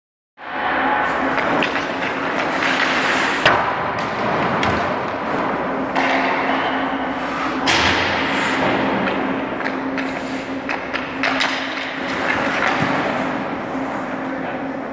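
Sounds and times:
steady low hum: 0:00.4 - 0:14.9
ice skates scraping on ice: 0:01.1 - 0:03.5, 0:07.1 - 0:14.4
hockey stick knocking puck: 0:01.3 - 0:07.0, 0:07.6 - 0:13.2.

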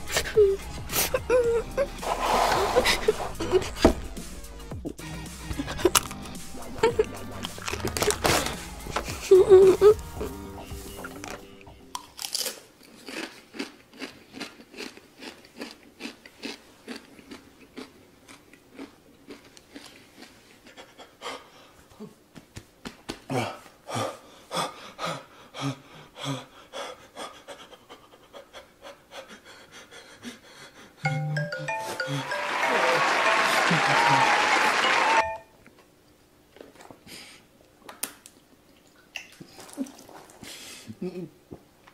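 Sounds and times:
mouth and lip sounds: 0:05.5 - 0:12.1
man panting: 0:23.3 - 0:31.0.

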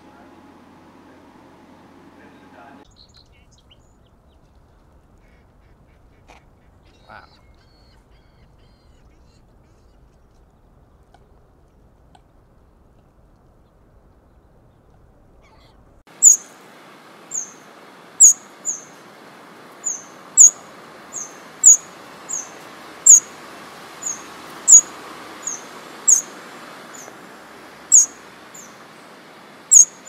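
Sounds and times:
woodland background hiss: 0:00.0 - 0:12.3, 0:14.3 - 0:30.0
small bird chirping: 0:02.8 - 0:04.9, 0:06.1 - 0:10.7, 0:14.3 - 0:16.5, 0:17.3 - 0:17.6, 0:18.2 - 0:19.0, 0:19.8 - 0:23.3, 0:24.0 - 0:26.3, 0:27.9 - 0:28.8, 0:29.7 - 0:30.0.

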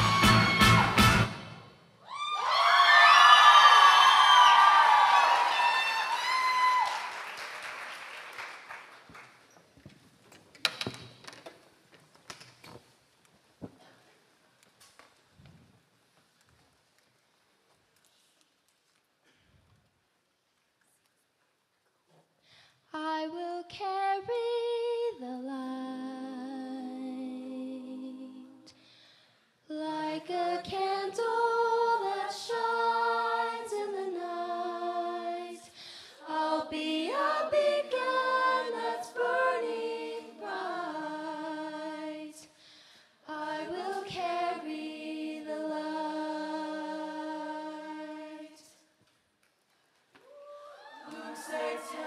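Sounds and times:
choir singing unaccompanied: 0:29.9 - 0:42.4, 0:43.3 - 0:48.7, 0:51.0 - 0:52.0.

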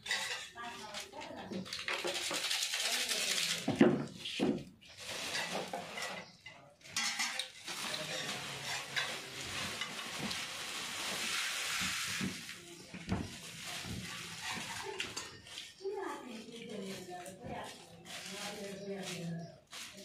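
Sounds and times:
plastic bag crinkling: 0:00.6 - 0:03.7, 0:07.6 - 0:12.2
puffed rice pouring: 0:07.6 - 0:12.8.

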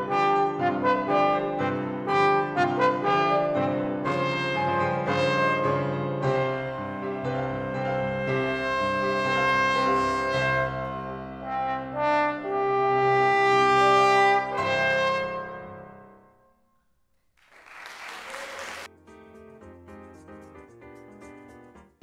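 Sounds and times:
piano chords: 0:00.0 - 0:16.3.

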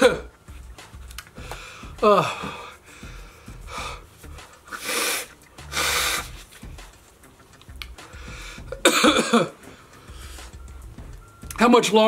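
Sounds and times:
man blowing his nose: 0:01.4 - 0:06.8
man groaning in pain: 0:01.9 - 0:02.7.

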